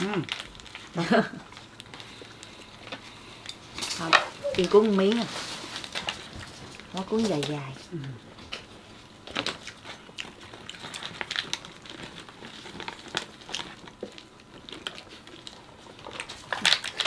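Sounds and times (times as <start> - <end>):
plastic gloves crinkling: 0.0 - 17.0.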